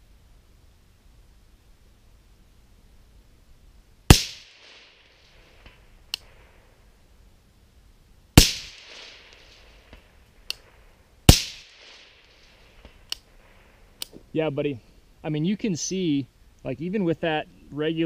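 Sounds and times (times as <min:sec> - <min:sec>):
suppressed rifle shots: 0:04.1 - 0:06.6, 0:08.4 - 0:13.6
faint sharp ticks: 0:05.6 - 0:06.3, 0:12.8 - 0:13.3.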